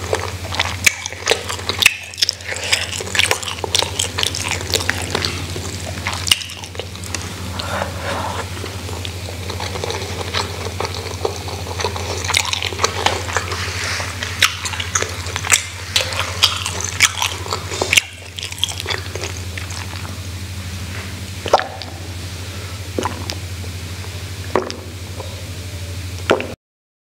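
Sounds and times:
mouth chewing food: 0.0 - 25.5
low hum: 0.0 - 26.5
person sipping water: 2.4 - 17.9.

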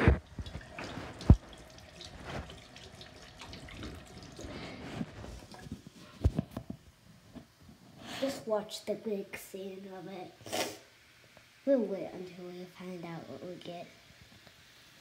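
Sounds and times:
hands washing under water: 0.0 - 5.9
faucet running: 0.1 - 5.7.

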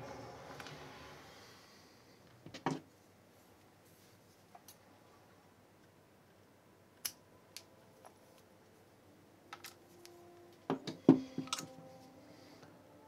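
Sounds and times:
objects set down on workbench: 2.5 - 2.8, 10.7 - 11.7.

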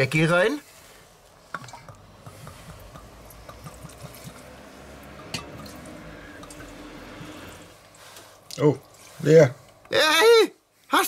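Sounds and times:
liquid pouring into metal bowl: 1.5 - 8.0.

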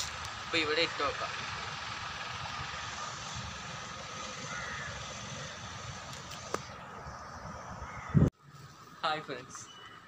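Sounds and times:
outdoor background noise: 0.0 - 10.0
crows cawing: 4.2 - 5.7, 7.8 - 8.2.

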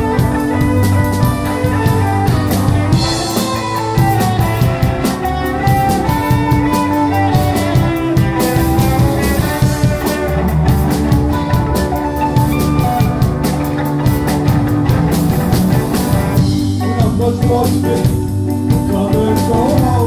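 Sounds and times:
electric guitar notes: 0.0 - 20.0
rock band playing: 0.0 - 20.0.

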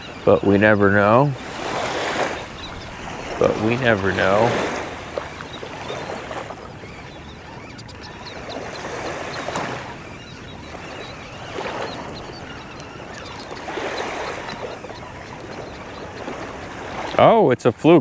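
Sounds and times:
small waves washing on beach: 0.0 - 18.0.

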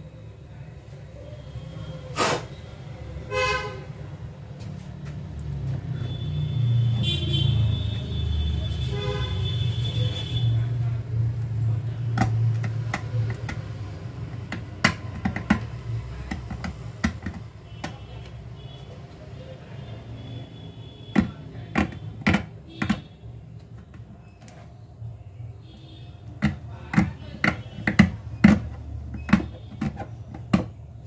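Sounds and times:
vehicle horn honking: 3.3 - 4.0, 6.0 - 10.6.

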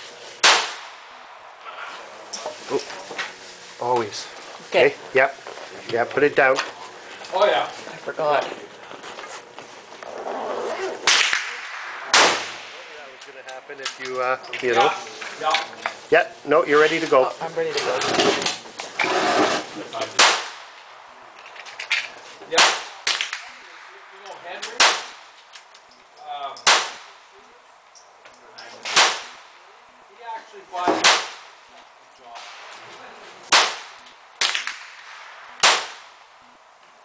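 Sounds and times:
pistol shots: 0.4 - 1.2, 11.0 - 13.0, 20.2 - 20.8, 22.6 - 23.9, 24.6 - 25.4, 26.6 - 27.2, 28.8 - 29.5, 31.0 - 31.6, 33.5 - 36.2
fainter distant gunshots: 0.4 - 1.4, 11.0 - 13.4, 20.2 - 21.0, 22.5 - 25.4, 26.6 - 27.3, 28.8 - 29.6, 30.9 - 31.6, 33.5 - 36.3.

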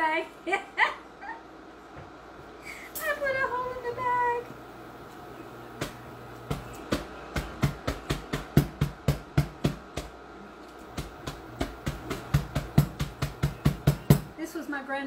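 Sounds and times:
wooden mallet pounding nuts: 5.8 - 10.2, 10.9 - 14.3.

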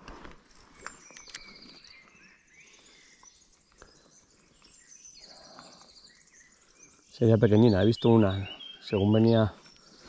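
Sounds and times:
soft clicks: 0.1 - 1.6
small birds trilling: 0.5 - 10.0.

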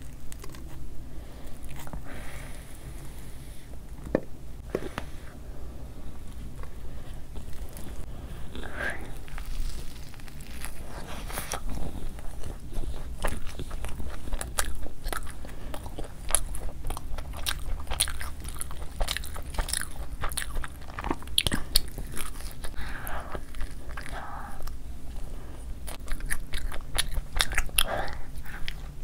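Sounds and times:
chewing with wet mouth clicks: 11.4 - 24.8, 25.8 - 29.0.

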